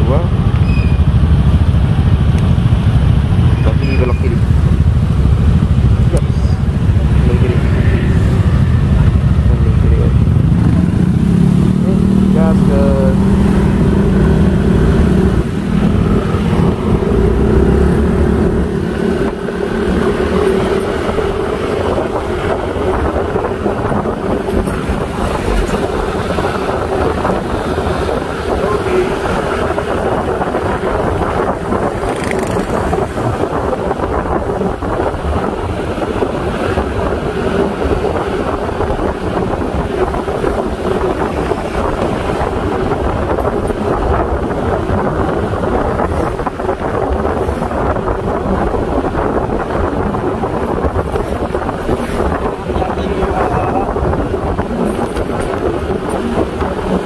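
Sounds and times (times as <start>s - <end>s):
wind rushing over microphone: 0.0s - 57.0s
motorbike engine running: 0.2s - 34.3s.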